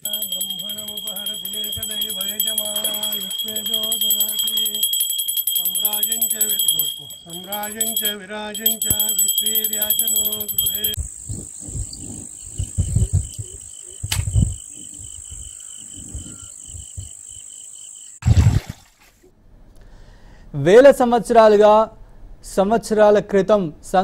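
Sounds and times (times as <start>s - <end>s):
man chanting: 0.0s - 4.9s, 5.6s - 11.0s
handbell ringing rapidly: 0.0s - 11.0s
insects trilling: 0.0s - 18.2s.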